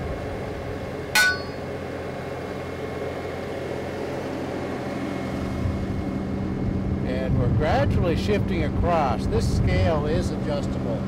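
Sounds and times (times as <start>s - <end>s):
machine hum: 0.0s - 11.0s
sledgehammer striking steel plate: 1.2s - 1.7s.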